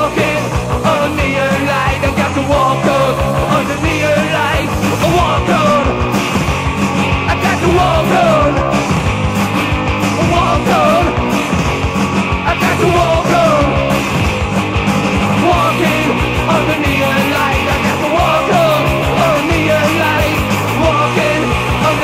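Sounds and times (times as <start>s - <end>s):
punk rock band playing: 0.0s - 22.0s.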